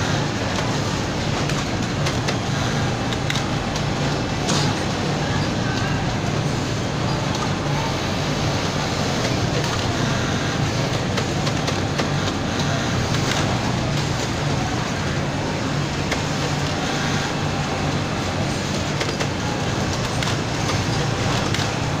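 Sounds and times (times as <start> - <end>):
sewing machines whirring: 0.0 - 22.0.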